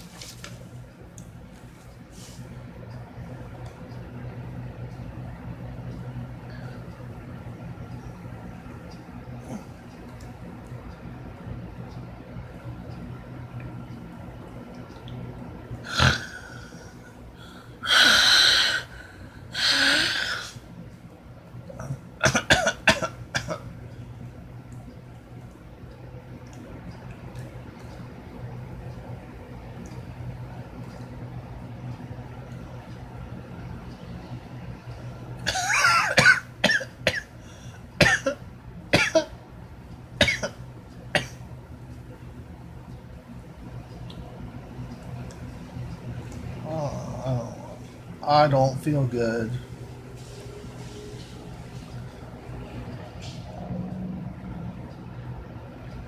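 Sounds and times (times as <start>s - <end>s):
man coughing hard: 22.2s - 23.6s, 35.4s - 37.3s, 38.0s - 38.4s, 39.0s - 39.3s, 40.2s - 40.6s.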